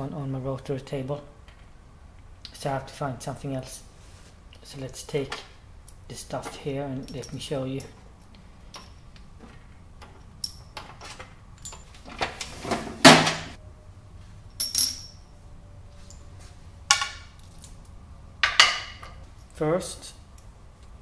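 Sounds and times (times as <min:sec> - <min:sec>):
steel parts clinking: 0:05.3 - 0:12.5, 0:14.5 - 0:15.3, 0:16.0 - 0:19.6
metal drawer sliding shut: 0:12.1 - 0:13.6.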